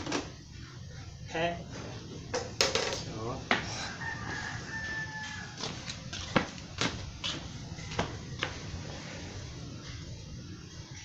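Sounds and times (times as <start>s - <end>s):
rooster crowing: 3.6s - 6.0s.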